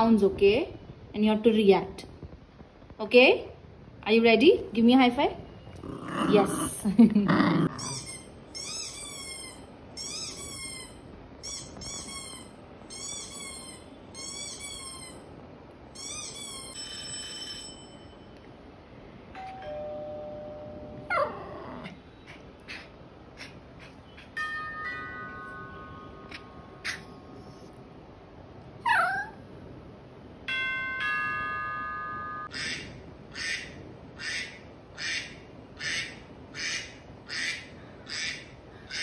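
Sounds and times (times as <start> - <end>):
high-pitched squeaks: 7.8 - 15.3, 16.0 - 18.2
ding-dong doorbell chime: 16.8 - 18.4, 19.4 - 21.1, 24.4 - 26.3, 30.5 - 32.5.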